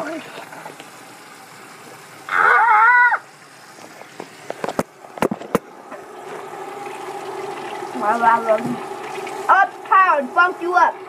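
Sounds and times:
high-pitched wordless cry: 2.3s - 3.3s
tap running into a steel sink: 3.8s - 10.0s.

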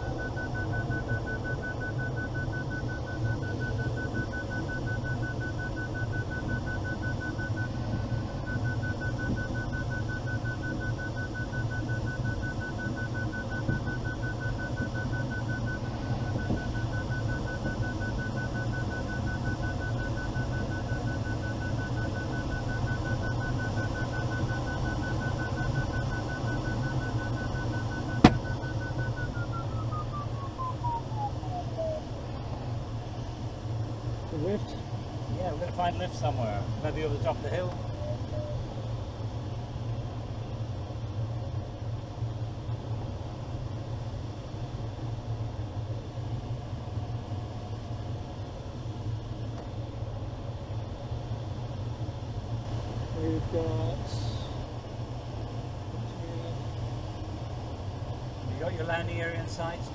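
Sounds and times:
variometer beeping: 0.0s - 32.2s, 36.1s - 38.7s
airflow rushing in cockpit: 0.0s - 42.7s.

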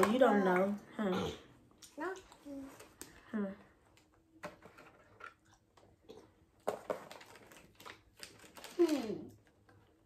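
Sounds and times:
wrapper crinkling: 6.6s - 9.8s.

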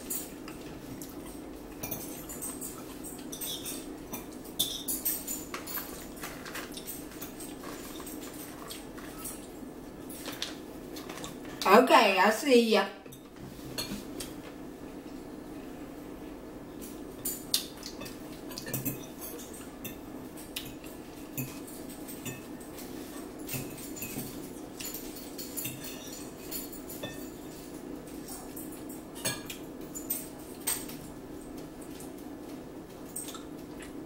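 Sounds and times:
steady low hum: 0.0s - 34.0s
forks clinking on plates: 0.1s - 10.4s, 17.2s - 31.1s.

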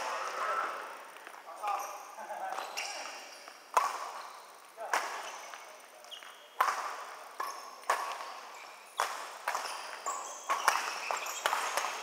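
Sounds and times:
badminton rackets striking shuttlecock: 2.9s - 4.2s, 4.8s - 5.6s, 6.2s - 12.0s.

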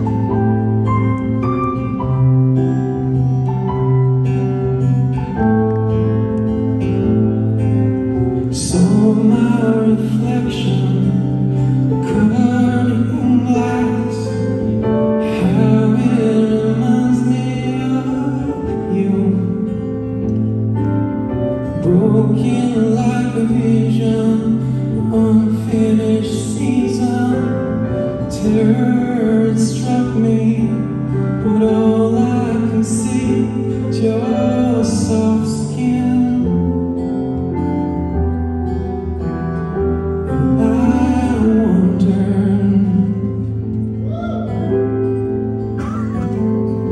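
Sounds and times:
keyboard: 0.0s - 46.9s
strummed acoustic guitar: 0.0s - 46.9s
man singing: 8.5s - 20.2s, 21.8s - 37.0s, 40.3s - 44.8s.

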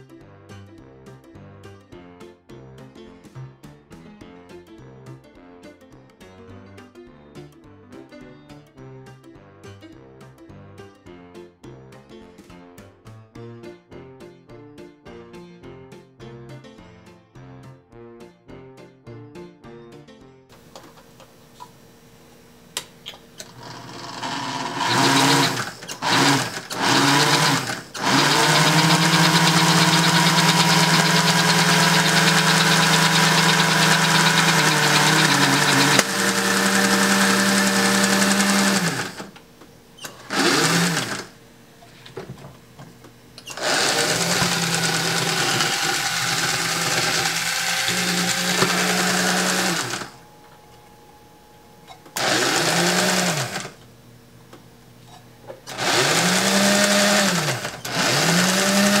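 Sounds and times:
toy train electric motor whine: 23.4s - 39.4s, 40.0s - 41.4s, 43.4s - 50.2s, 51.9s - 53.8s, 55.7s - 59.0s.

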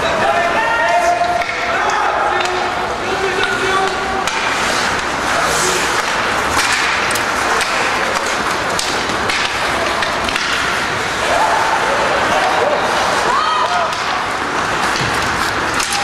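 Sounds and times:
sticks and puck knocking: 1.1s - 11.1s, 12.3s - 16.0s
skate blades scraping ice: 3.4s - 16.0s
people shouting: 11.0s - 14.5s, 15.7s - 16.0s.

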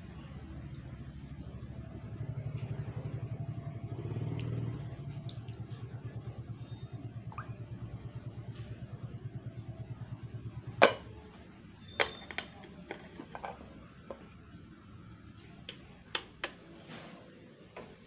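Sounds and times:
glass lid clacking on pot: 10.8s - 11.1s
lid and stick knocks and clicks: 10.8s - 11.1s, 12.0s - 14.3s.

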